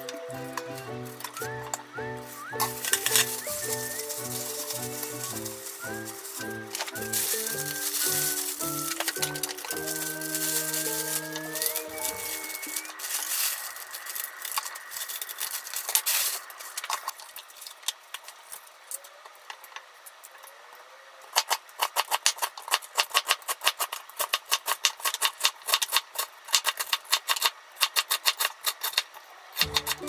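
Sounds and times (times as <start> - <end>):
plastic bag crinkling: 0.0 - 18.6
scissors snipping greens: 2.5 - 12.5, 29.6 - 30.0.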